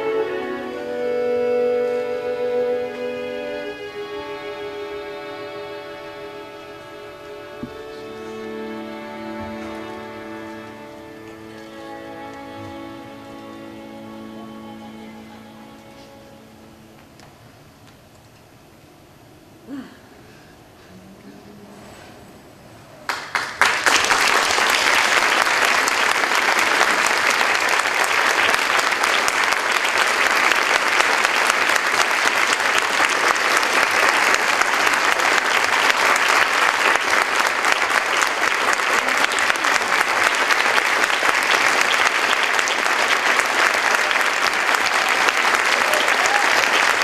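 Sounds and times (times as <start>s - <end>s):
audience applauding: 23.1s - 47.0s.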